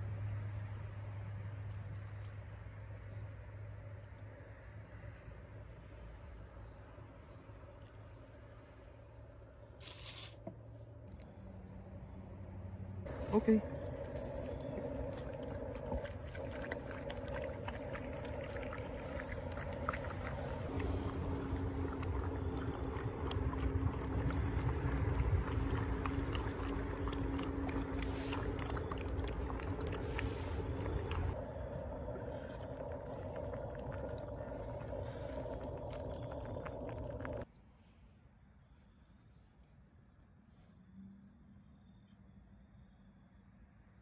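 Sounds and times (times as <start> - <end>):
dogs slurping and lapping: 13.1 - 37.4
steady low hum: 13.1 - 37.4
teeth and kibble clicking on bowls: 13.1 - 37.4.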